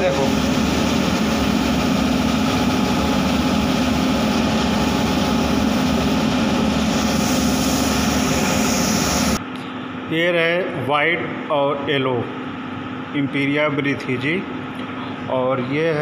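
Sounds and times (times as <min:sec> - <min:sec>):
machine drone with low hum: 0:00.0 - 0:16.0
spray gun hissing: 0:06.8 - 0:09.4.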